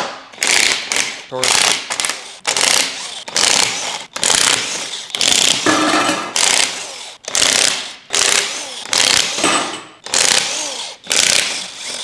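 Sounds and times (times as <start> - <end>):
impact wrench hammering: 0.0 - 12.0.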